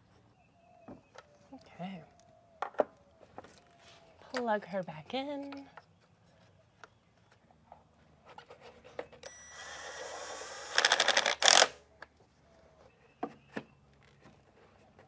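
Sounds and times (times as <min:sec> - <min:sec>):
cordless drill motor whining: 0:09.2 - 0:11.8
drill clutch rattling clicks: 0:10.0 - 0:11.7.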